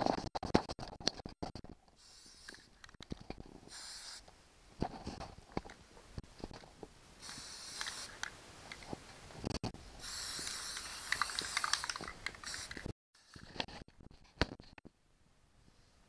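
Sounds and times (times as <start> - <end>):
aerosol spray hissing: 2.0 - 2.6, 3.7 - 4.2, 7.2 - 8.3, 10.0 - 12.9.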